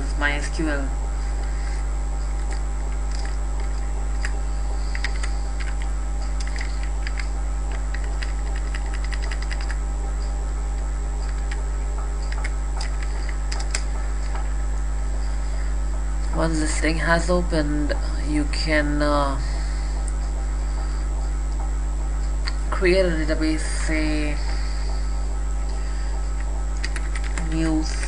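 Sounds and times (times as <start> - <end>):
loud low electrical hum: 0.0 - 28.0
computer keyboard keys clicking: 2.4 - 9.8, 11.2 - 11.6, 12.2 - 14.5, 26.4 - 28.0.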